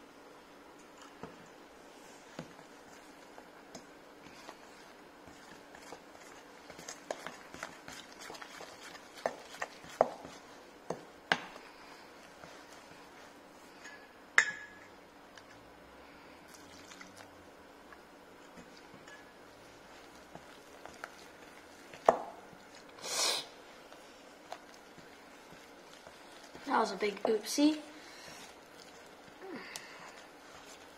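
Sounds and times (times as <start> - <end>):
spoon clinking in metal bowl: 13.8 - 14.9.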